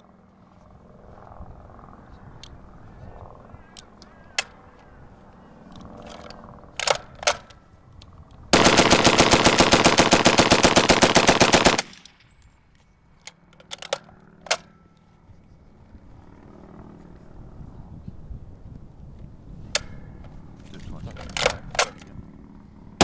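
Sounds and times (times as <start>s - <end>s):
sharp metallic clicks: 5.7s - 12.5s
machine gun burst: 8.6s - 12.0s.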